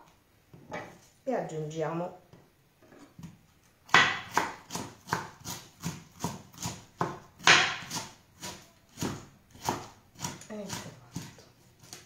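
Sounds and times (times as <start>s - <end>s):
knife chopping on wooden board: 3.9s - 12.0s.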